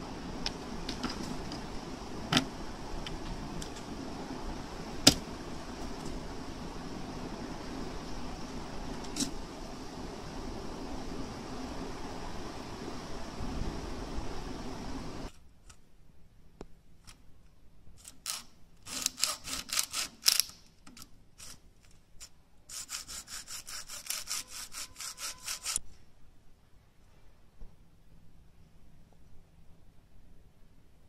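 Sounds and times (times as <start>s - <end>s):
plastic wrapper being scraped: 18.0s - 25.8s.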